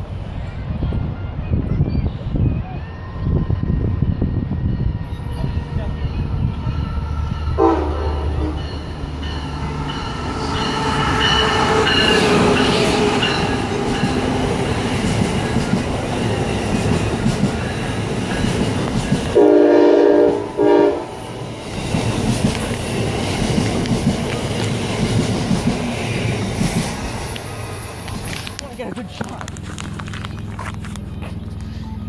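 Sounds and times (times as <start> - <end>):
electric train passing at speed: 0.0 - 32.0
train horn blasts: 7.4 - 9.0, 19.3 - 21.2
wheels clattering on rails: 8.1 - 19.4, 21.4 - 31.8.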